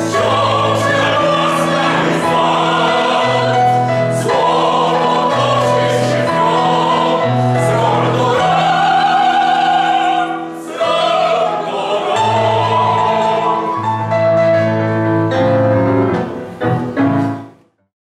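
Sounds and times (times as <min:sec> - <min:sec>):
mixed choir singing: 0:00.0 - 0:14.3
piano accompaniment: 0:00.0 - 0:17.9.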